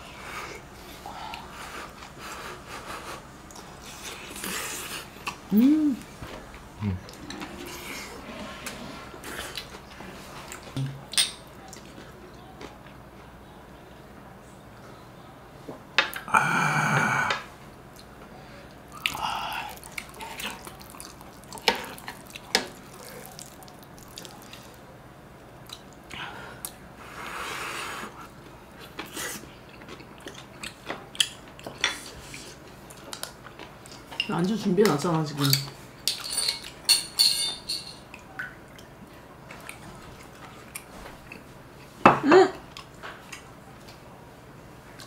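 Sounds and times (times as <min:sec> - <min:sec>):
person exclaiming: 0:05.5 - 0:06.0
glass and cutlery clicks: 0:35.4 - 0:38.0.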